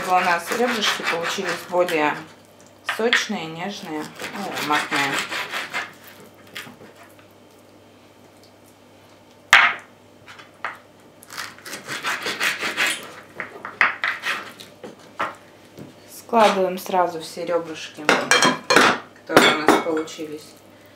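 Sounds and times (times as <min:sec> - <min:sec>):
scraping and rubbing of meat: 0:00.0 - 0:02.3, 0:03.8 - 0:07.5, 0:14.0 - 0:15.2.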